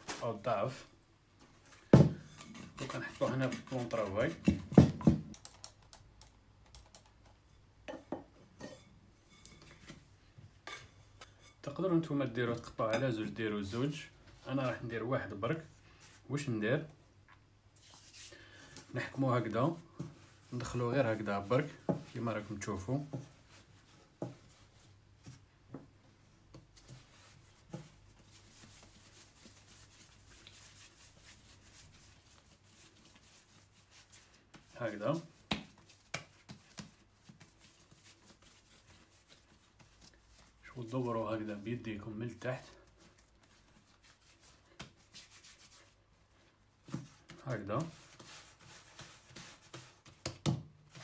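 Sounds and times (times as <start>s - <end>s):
dough rubbing between palms: 17.8s - 18.3s, 26.6s - 41.6s, 42.7s - 51.0s
soft pats on dough: 22.9s - 30.6s, 34.0s - 40.6s.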